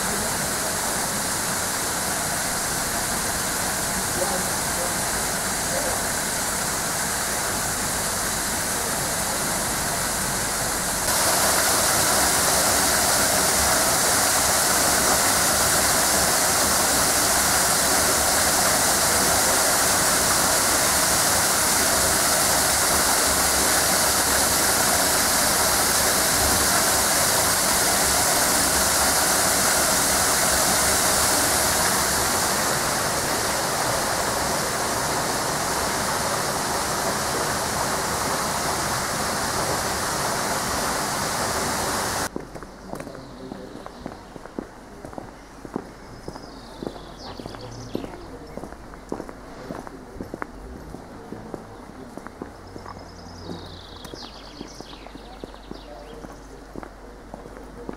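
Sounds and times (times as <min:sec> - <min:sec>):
waterfall rushing over rocks: 0:00.0 - 0:42.3.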